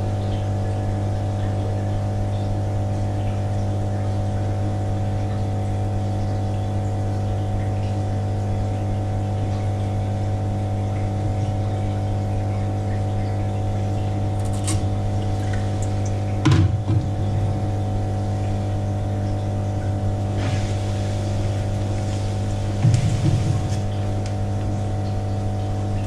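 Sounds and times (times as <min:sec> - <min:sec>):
low mechanical pump hum: 0:00.0 - 0:26.0
small water splashes: 0:12.4 - 0:17.6.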